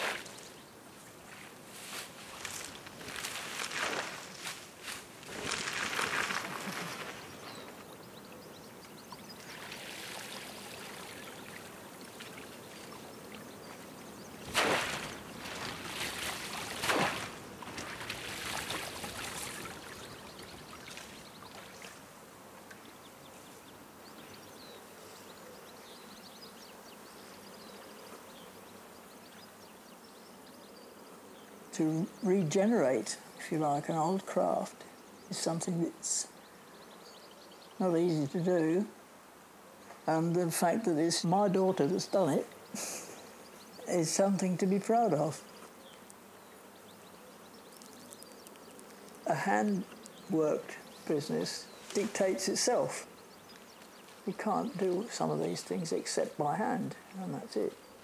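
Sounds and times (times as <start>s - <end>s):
water splashing and streaming: 5.2s - 7.9s, 9.1s - 23.0s
faint water wash: 9.4s - 22.1s
loud splashes: 14.4s - 20.1s.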